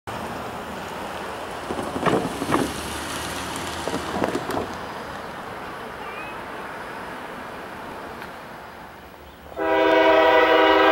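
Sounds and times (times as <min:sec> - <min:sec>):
wind or rain on microphone: 0:00.1 - 0:05.8.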